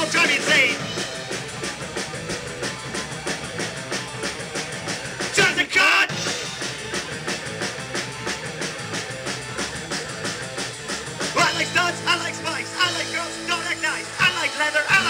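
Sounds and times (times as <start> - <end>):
punk rock band playing: 0.0 - 15.0
high-pitched burst: 11.4 - 15.0.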